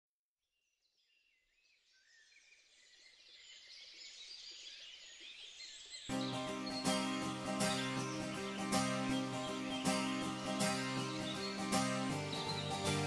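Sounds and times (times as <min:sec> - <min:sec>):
birds chirping: 0:01.7 - 0:13.0
music: 0:06.1 - 0:13.0.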